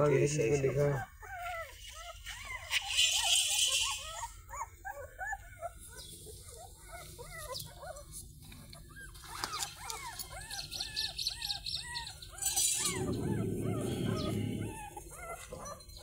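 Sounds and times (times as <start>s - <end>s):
puppies whimpering and squeaking: 0.0s - 16.0s
handling rustle: 7.0s - 10.4s.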